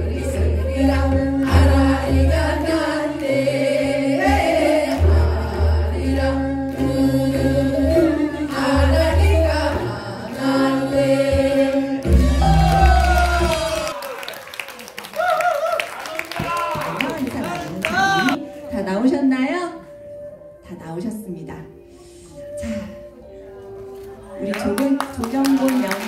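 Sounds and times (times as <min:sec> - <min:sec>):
amplified accompaniment with bass: 0:00.0 - 0:13.9
women singing together: 0:00.0 - 0:13.9.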